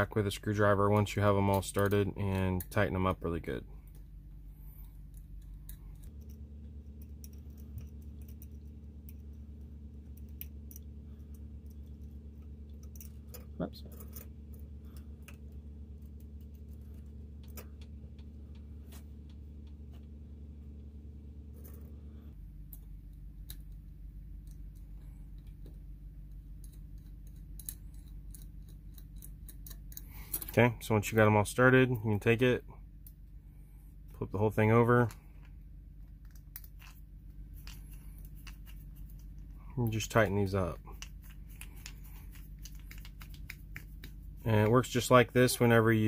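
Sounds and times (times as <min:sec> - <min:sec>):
steady low hum: 0:00.0 - 0:46.0
small screws clicking: 0:24.4 - 0:30.6, 0:40.9 - 0:44.2.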